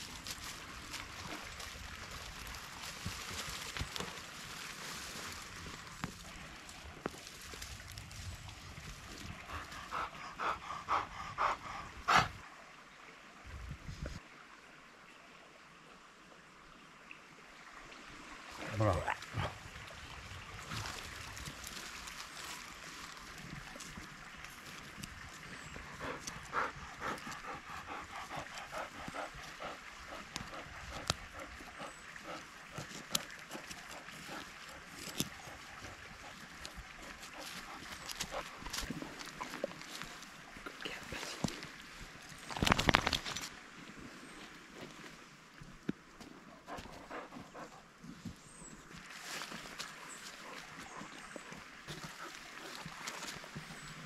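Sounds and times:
dog panting quickly: 0:09.5 - 0:12.4, 0:25.8 - 0:38.9, 0:46.7 - 0:47.9.

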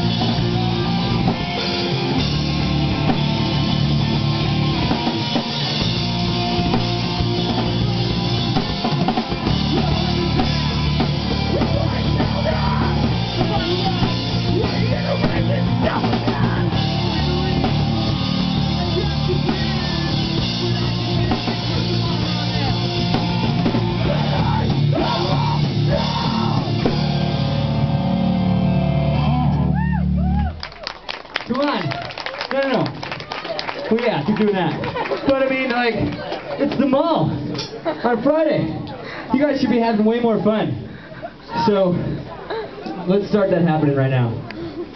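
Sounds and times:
rock band playing live: 0:00.0 - 0:31.5.

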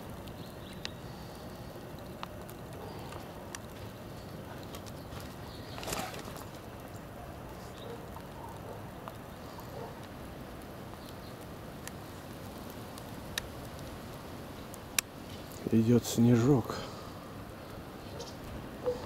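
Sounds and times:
faint outdoor background noise: 0:00.0 - 0:19.0
faint clicks: 0:12.6 - 0:14.1, 0:14.7 - 0:15.7.

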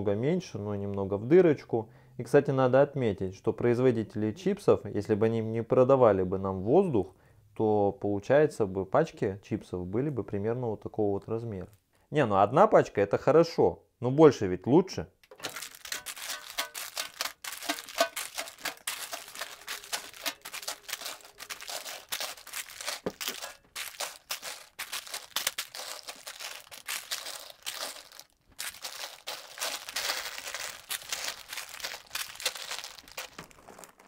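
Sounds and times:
plastic bags crinkling: 0:15.3 - 0:34.0.

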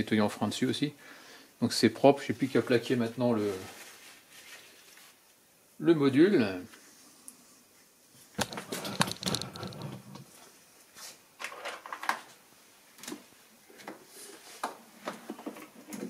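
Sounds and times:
light clicks and scrapes: 0:08.4 - 0:12.0.

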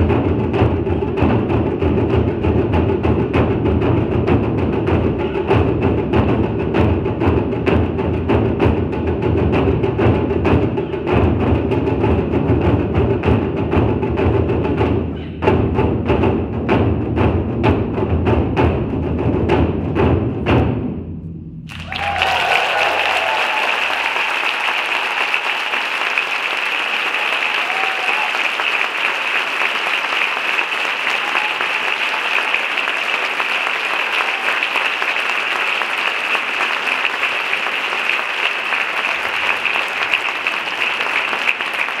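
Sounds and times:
large drum strokes: 0:00.0 - 0:22.4
audience applause: 0:21.7 - 0:42.0.

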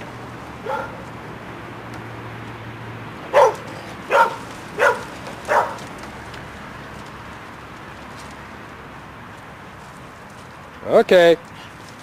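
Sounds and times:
dog barking: 0:00.6 - 0:01.0, 0:03.3 - 0:05.8.

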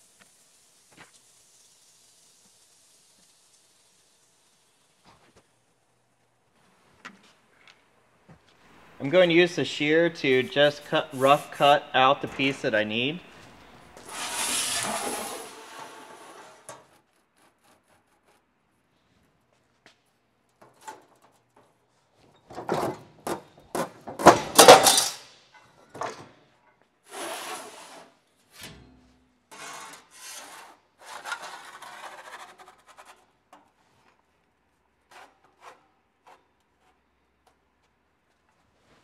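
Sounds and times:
steel sheet scraping across metal: 0:13.3 - 0:18.1, 0:27.1 - 0:28.1.

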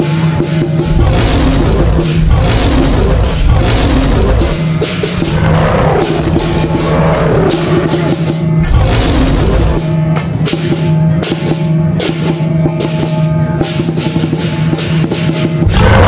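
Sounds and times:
cymbal crashes: 0:00.0 - 0:16.0
drum beats: 0:00.0 - 0:16.0
steady low tone: 0:00.5 - 0:12.6.

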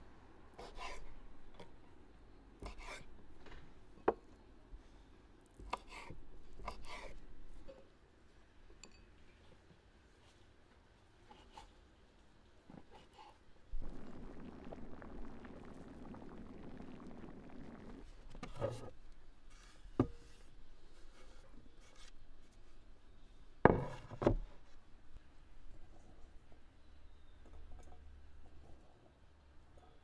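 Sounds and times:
rustling pouring noise: 0:13.7 - 0:19.8.

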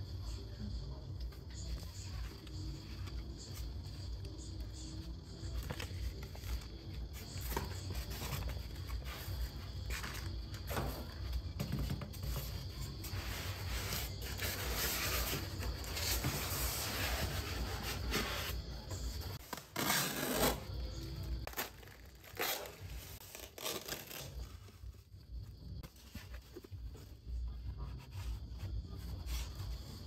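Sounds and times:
foam rubbing and scraping: 0:12.0 - 0:20.8
tape being pulled: 0:19.4 - 0:20.7, 0:21.5 - 0:24.5.

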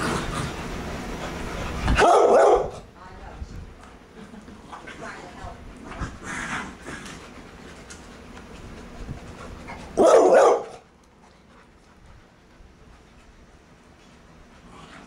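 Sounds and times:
dog barking: 0:02.0 - 0:02.8, 0:10.0 - 0:10.8.

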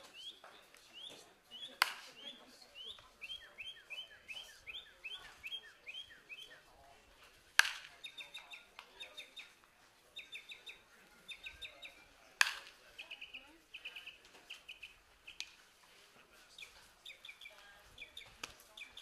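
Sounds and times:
birds chirping: 0:00.0 - 0:06.8, 0:07.6 - 0:15.6, 0:16.2 - 0:19.0
baseball bat striking ball: 0:01.6 - 0:02.1, 0:07.6 - 0:08.0, 0:12.4 - 0:12.8.

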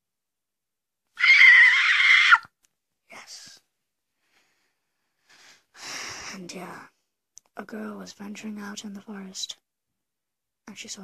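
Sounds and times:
child screeching: 0:01.2 - 0:02.5.

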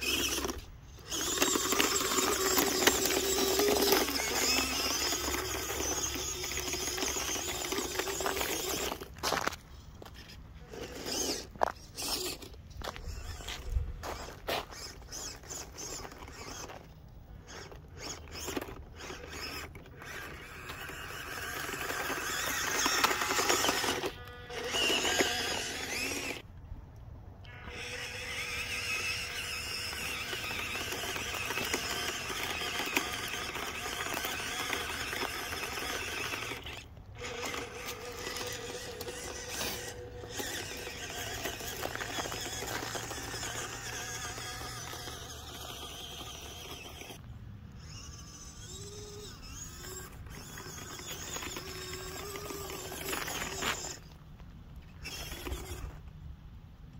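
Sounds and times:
tyres crunching through snow: 0:00.0 - 0:26.4, 0:28.3 - 0:47.2
small electric motor whining: 0:00.0 - 0:26.5, 0:27.4 - 0:56.2.

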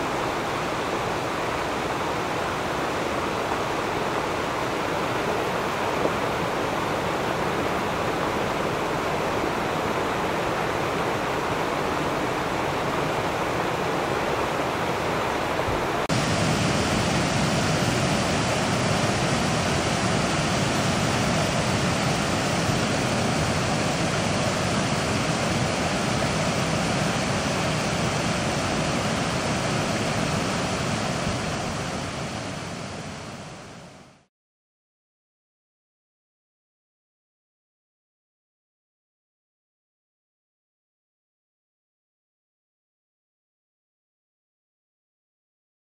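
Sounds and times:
floodwater rushing down a creek: 0:00.0 - 0:34.0.

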